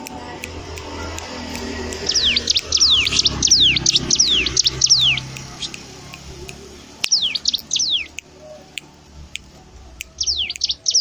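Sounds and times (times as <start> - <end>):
songbird whistling: 1.9 - 5.8, 7.0 - 8.8, 10.0 - 11.0.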